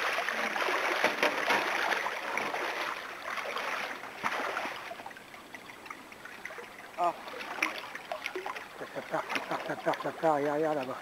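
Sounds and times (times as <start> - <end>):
running stream: 0.0 - 11.0
water splashing and sloshing: 0.0 - 11.0.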